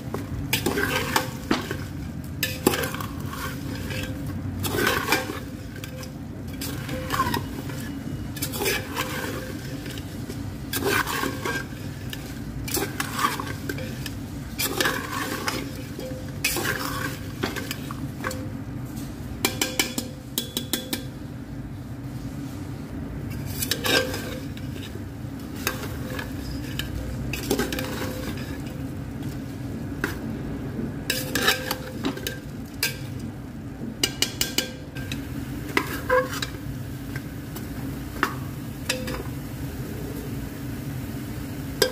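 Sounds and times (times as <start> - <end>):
metal spoon scraping a pot: 0.1 - 21.2, 23.3 - 28.8, 31.1 - 33.2, 34.0 - 36.6.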